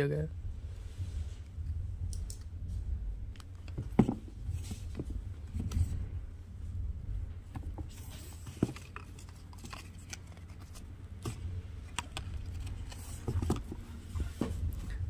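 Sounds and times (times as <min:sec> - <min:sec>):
low rumble: 0:00.2 - 0:15.0
shoe handling taps and rustles: 0:03.6 - 0:05.9, 0:07.5 - 0:14.8.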